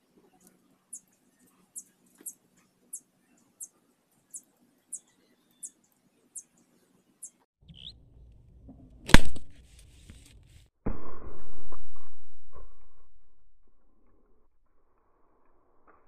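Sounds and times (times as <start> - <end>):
sharp crack: 9.1 - 9.6.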